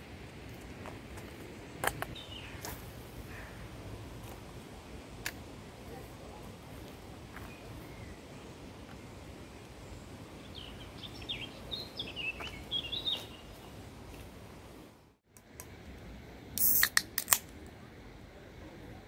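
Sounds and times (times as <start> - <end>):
steady background hiss: 0.0 - 19.0
small bird chirping: 9.9 - 13.8.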